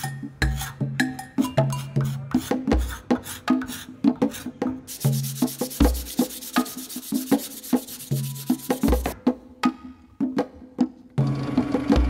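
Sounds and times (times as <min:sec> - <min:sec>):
sandpaper sanding wood: 0:02.0 - 0:09.2
percussion and bass music: 0:04.9 - 0:09.2.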